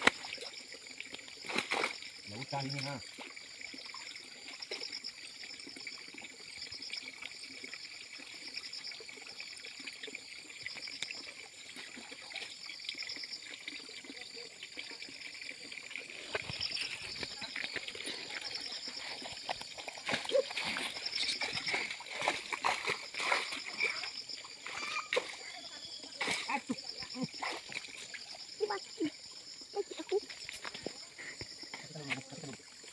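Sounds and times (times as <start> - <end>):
water splashing and sloshing: 0.0 - 32.9
water trickling: 0.0 - 32.9.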